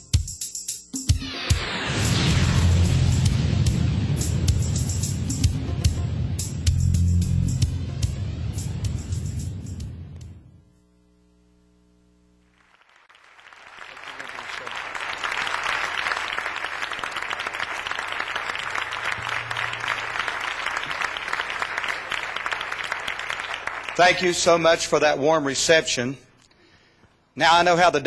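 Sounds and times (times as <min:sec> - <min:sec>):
congregation applauding: 0:12.4 - 0:25.2.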